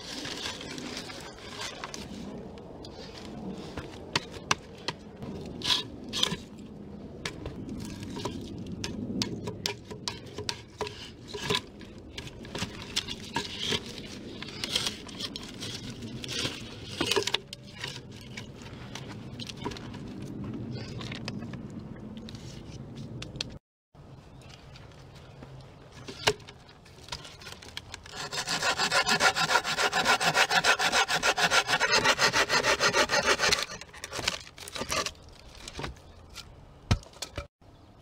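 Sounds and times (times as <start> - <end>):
logs scraping: 0.0 - 6.6, 10.2 - 23.2, 25.8 - 36.6.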